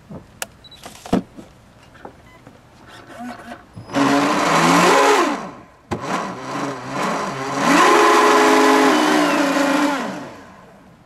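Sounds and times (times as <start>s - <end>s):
electric motor whining: 3.9s - 10.7s.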